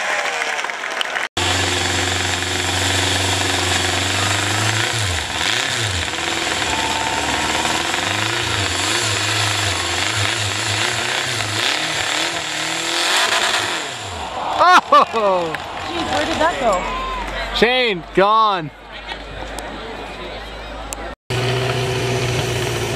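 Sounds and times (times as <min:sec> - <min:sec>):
chainsaw running hard: 0:01.4 - 0:14.4, 0:21.3 - 0:22.9.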